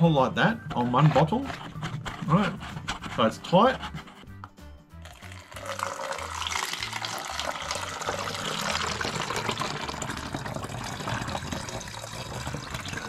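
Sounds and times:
water pouring into a bottle: 5.0s - 13.0s.

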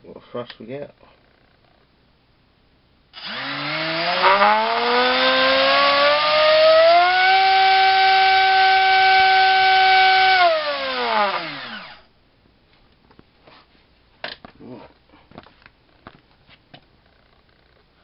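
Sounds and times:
drone motor whining: 3.2s - 12.0s.

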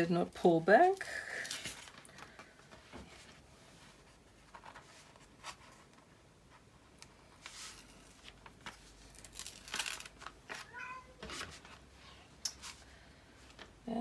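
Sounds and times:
plastic film rustling: 7.3s - 11.9s.

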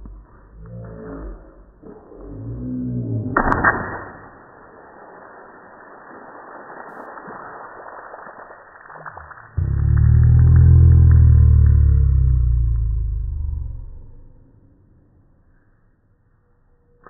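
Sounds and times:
water balloon bursting and splashing: 3.4s - 12.3s.

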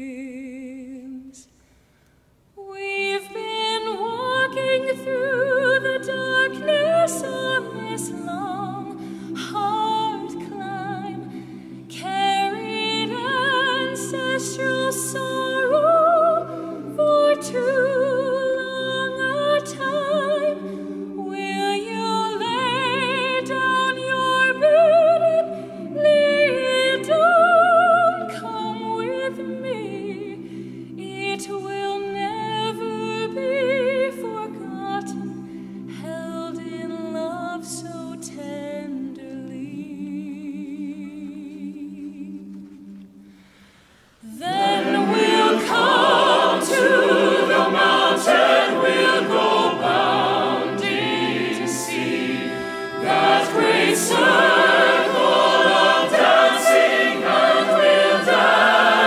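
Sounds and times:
choir and chamber ensemble: 2.6s - 59.0s
solo voice singing with vibrato: 44.2s - 59.0s.

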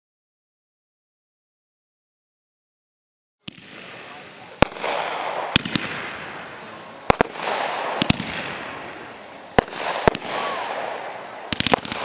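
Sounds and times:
fireworks bangs: 3.4s - 12.0s
fireworks hiss: 3.7s - 12.0s.

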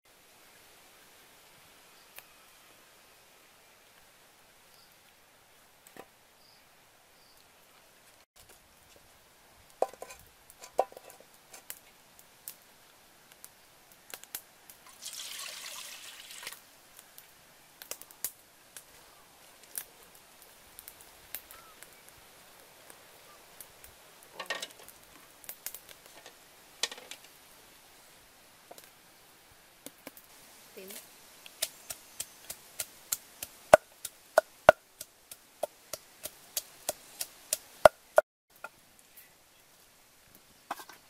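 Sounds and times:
water pouring into pot: 14.8s - 16.6s.

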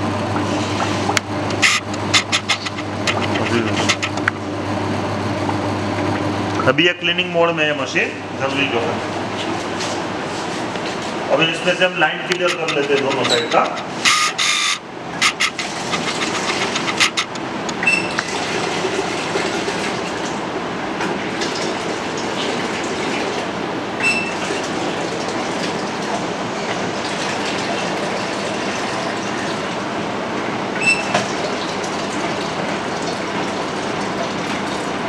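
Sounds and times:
ice cream machine running: 0.0s - 35.0s
water draining into a jug: 18.0s - 20.4s, 21.2s - 29.8s, 30.8s - 35.0s.

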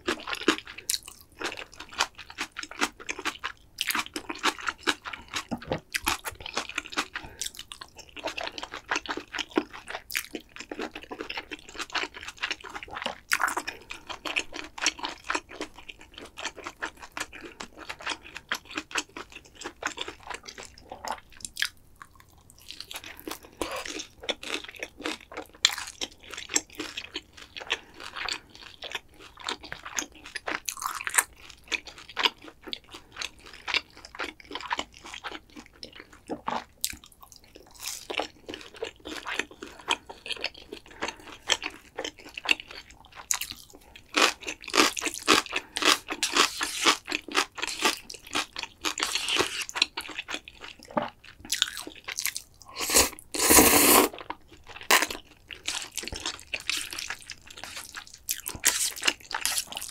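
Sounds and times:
crunching and chewing fried food: 0.0s - 59.9s.

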